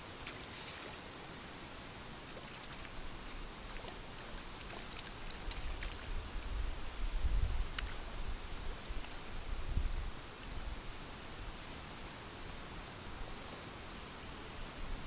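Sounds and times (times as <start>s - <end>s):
wind hiss: 0.0s - 15.0s
wind buffeting microphone: 5.0s - 11.0s
light ticks: 7.7s - 8.0s.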